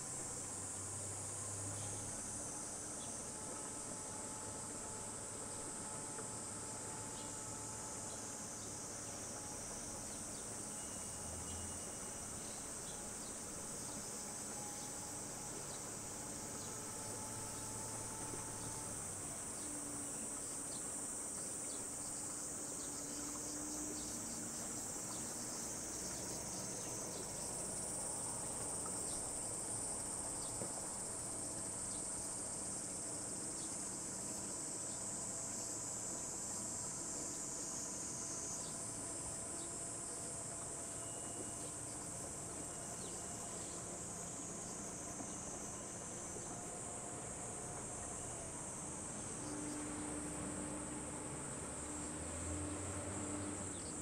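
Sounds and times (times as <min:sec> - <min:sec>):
cicadas droning: 0:00.0 - 0:54.0
faint boat motor hum: 0:00.0 - 0:54.0.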